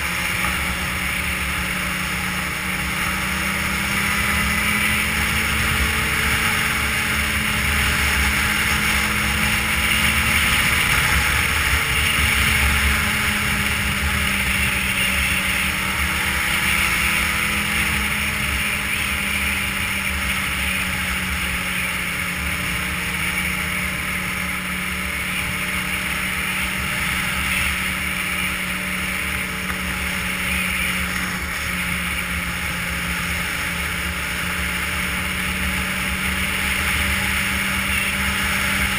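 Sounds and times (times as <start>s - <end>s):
snowmobile engine running: 0.0s - 38.9s.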